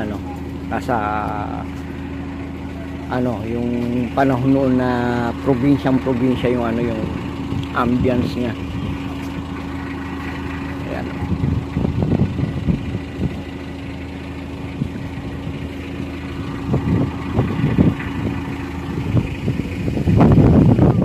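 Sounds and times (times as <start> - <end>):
vehicle engine idling: 0.0 - 21.0
wind rumbling on microphone: 7.1 - 21.0.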